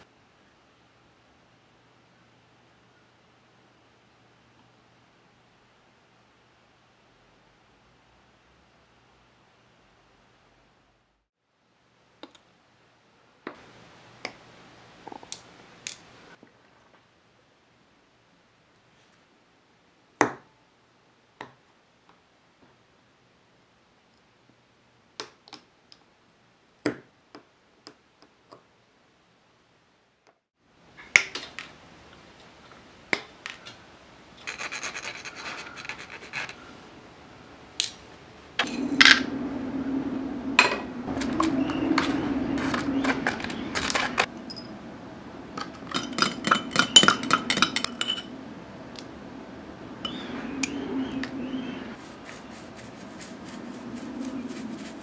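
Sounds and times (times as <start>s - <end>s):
low hum: 36.6s - 55.0s
small metal parts clinking in dish: 45.6s - 48.3s.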